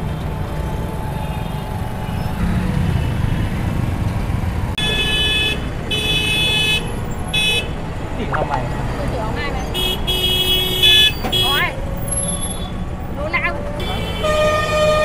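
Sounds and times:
engine and road rumble: 0.0s - 15.0s
vehicle horn honking: 9.8s - 11.6s, 13.8s - 15.0s.

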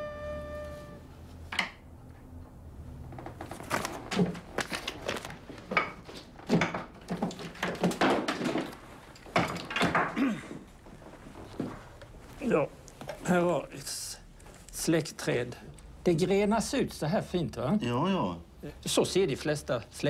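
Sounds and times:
music: 0.0s - 1.0s
objects knocking on wood: 5.6s - 10.6s.

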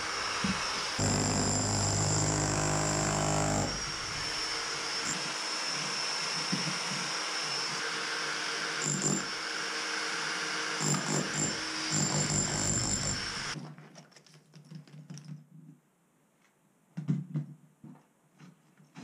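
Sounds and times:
demolition hammer chiselling brick: 1.0s - 4.0s, 8.8s - 9.3s, 10.8s - 13.6s.

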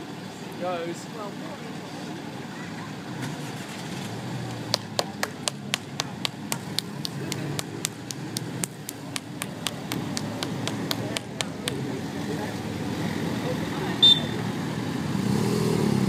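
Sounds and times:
motorcycles rumbling: 0.0s - 16.0s
person clapping: 4.5s - 11.8s.

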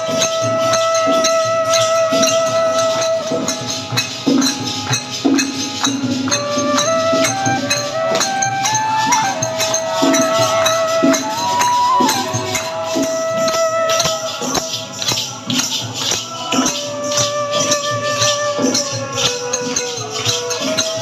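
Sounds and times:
hand drum strokes: 0.0s - 21.0s
group hand-clapping: 2.9s - 13.0s, 14.0s - 17.3s.

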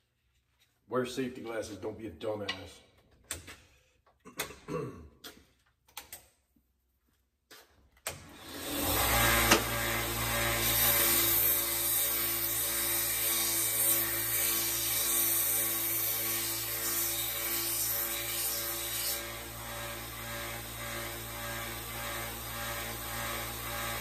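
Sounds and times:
belt sander running: 8.3s - 24.0s
wood sanding on belt: 10.5s - 20.6s.

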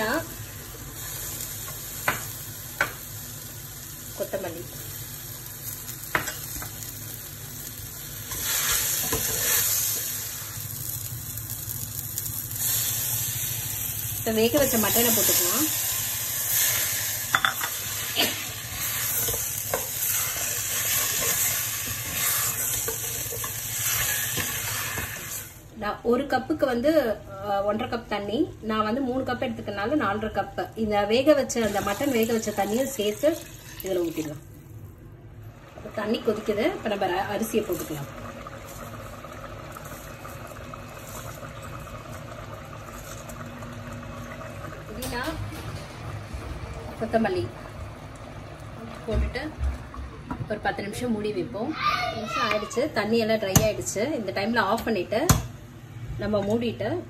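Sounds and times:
meat sizzling in a pot: 0.0s - 25.7s, 31.3s - 34.8s, 35.5s - 49.5s
rice poured into a pot: 37.7s - 43.9s.

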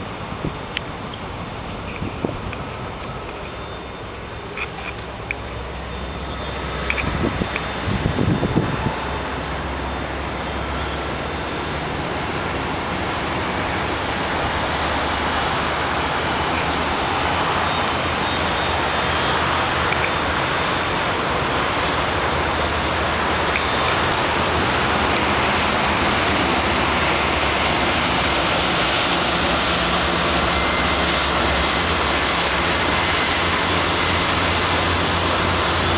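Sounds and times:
distant road traffic: 0.0s - 35.9s
steady rushing noise: 0.0s - 35.9s
wind rushing: 7.1s - 9.2s.

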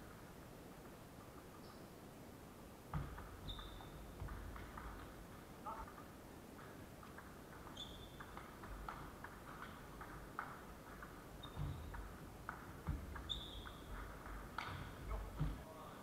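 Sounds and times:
shoes squeaking on wooden floor: 2.9s - 4.2s, 7.6s - 8.4s, 11.2s - 12.2s, 12.8s - 15.7s
table tennis ball hits: 2.9s - 5.5s, 6.6s - 15.6s.

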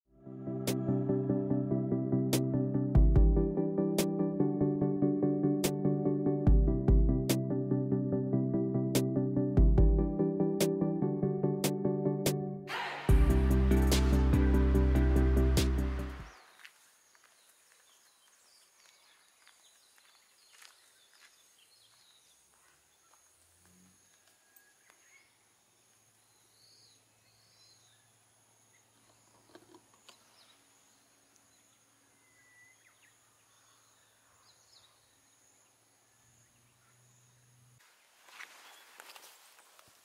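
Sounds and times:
low hum: 12.7s - 16.3s.

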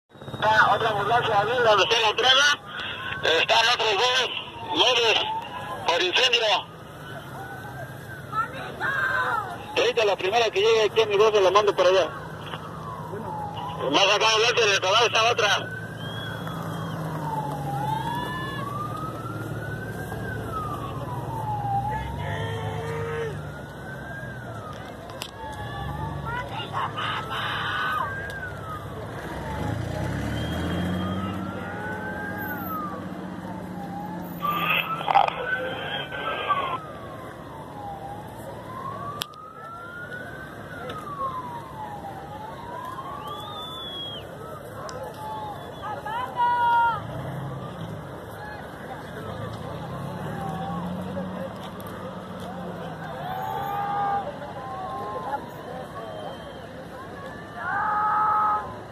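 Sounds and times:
emergency vehicle siren wailing: 0.1s - 58.9s.

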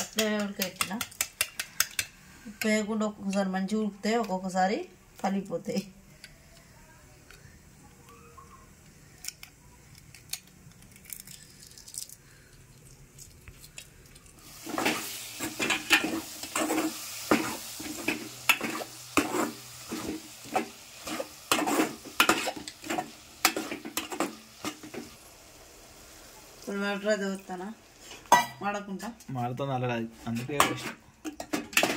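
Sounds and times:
egg shell being peeled: 9.1s - 14.4s
vegetables sizzling in oil: 14.4s - 31.9s
ladle scraping a metal pot: 18.0s - 25.0s.

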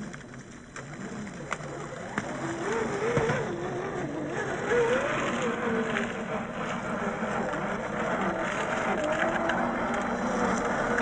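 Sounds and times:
electric motor and gears whining: 0.0s - 11.0s.

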